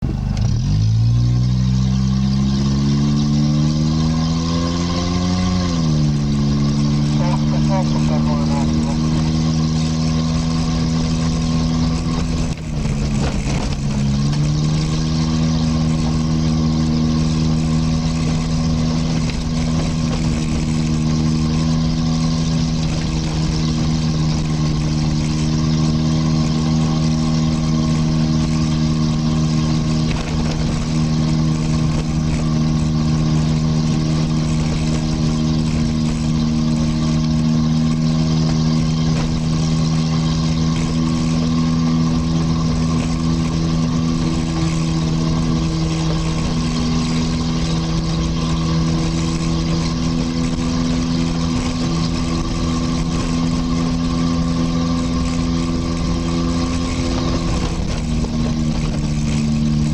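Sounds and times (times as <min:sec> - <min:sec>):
vehicle engine under load: 0:00.0 - 0:59.9.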